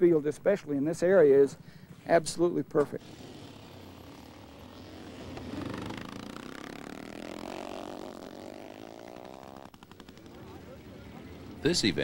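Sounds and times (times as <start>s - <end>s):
motorcycle engine revving past: 3.0s - 11.6s.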